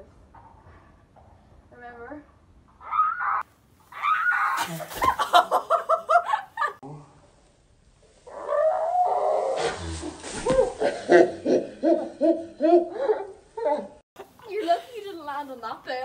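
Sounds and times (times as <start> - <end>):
girl laughing: 4.6 - 6.8.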